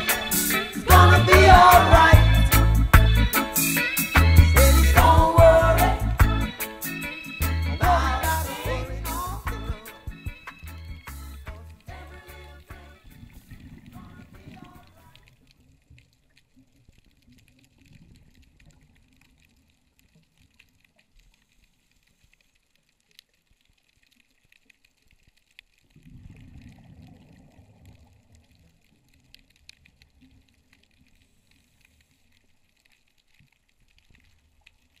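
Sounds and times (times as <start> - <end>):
muffled underwater water movement: 8.5 - 35.0
faint clicks and crackles: 13.0 - 35.0.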